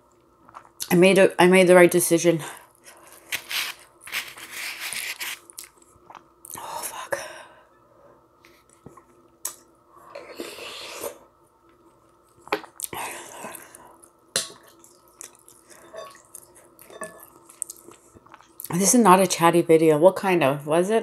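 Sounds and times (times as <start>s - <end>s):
wet chewing and mouth noises: 3.1s - 6.6s, 11.8s - 18.7s.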